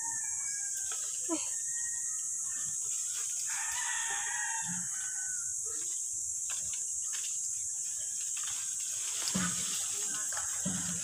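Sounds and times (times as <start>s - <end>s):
steady high hiss: 0.0s - 11.0s
branches cracking and rustling: 2.8s - 5.1s, 5.8s - 11.0s.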